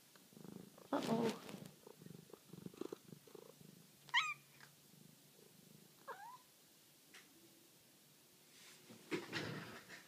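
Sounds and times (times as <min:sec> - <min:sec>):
cat purring: 0:00.0 - 0:06.5
cat chirping: 0:04.1 - 0:04.7, 0:06.0 - 0:06.5.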